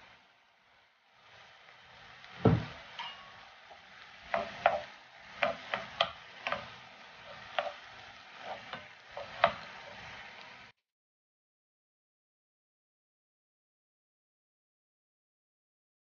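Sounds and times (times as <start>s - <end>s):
light sizzle: 0.0s - 10.8s
wooden spatula scraping a pan: 1.2s - 10.7s.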